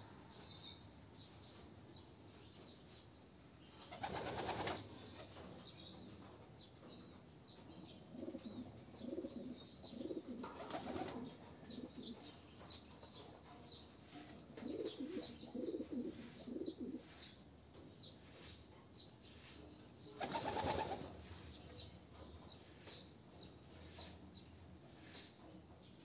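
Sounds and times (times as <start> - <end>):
wings flapping: 4.0 - 4.8, 10.6 - 11.2, 20.2 - 21.0
pigeons cooing: 8.1 - 12.2, 14.6 - 17.4.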